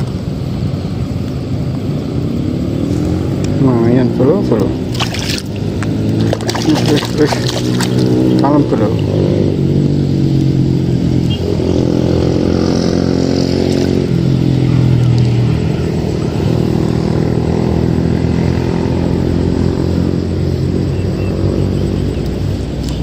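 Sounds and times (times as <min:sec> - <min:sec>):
motor engine running: 0:04.5 - 0:09.6.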